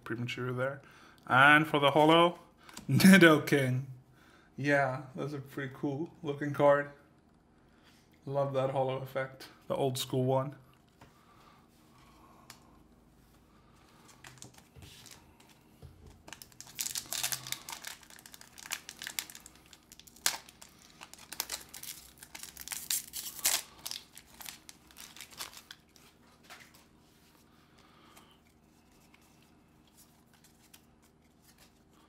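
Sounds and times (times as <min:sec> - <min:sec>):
wrapper crinkling and tearing: 0:16.2 - 0:26.8.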